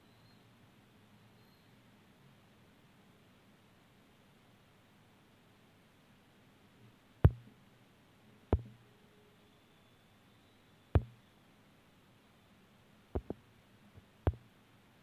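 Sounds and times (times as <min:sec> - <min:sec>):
brief low thud: 0:07.3 - 0:07.5, 0:08.6 - 0:08.8, 0:11.0 - 0:11.2
sharp knocks of phone parts: 0:07.3 - 0:07.5, 0:08.6 - 0:08.8, 0:11.0 - 0:11.2, 0:13.2 - 0:13.4.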